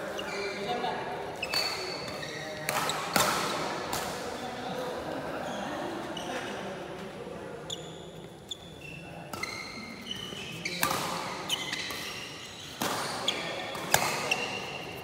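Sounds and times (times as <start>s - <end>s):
shoes squeaking on court floor: 0.0s - 3.6s, 5.4s - 6.7s, 7.6s - 15.0s
rackets hitting shuttlecock: 1.5s - 4.3s, 10.7s - 14.8s.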